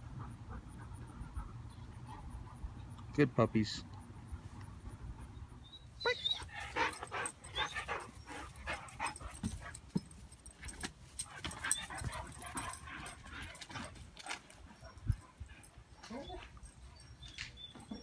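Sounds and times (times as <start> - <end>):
dogs yipping and whining: 5.2 - 10.2, 11.2 - 18.0
dog paws scuffling: 6.1 - 15.3.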